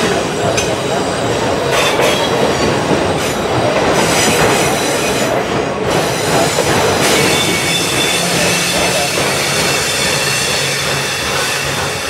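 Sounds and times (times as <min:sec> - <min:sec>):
steel wheels rolling on rail: 0:00.0 - 0:12.0
high-pitched wheel squeal: 0:07.0 - 0:12.0.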